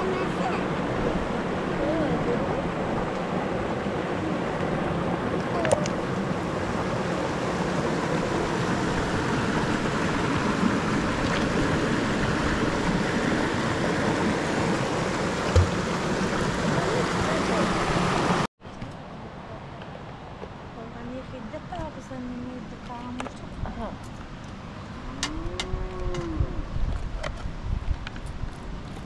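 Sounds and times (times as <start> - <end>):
river flowing over rocks: 0.0 - 18.5.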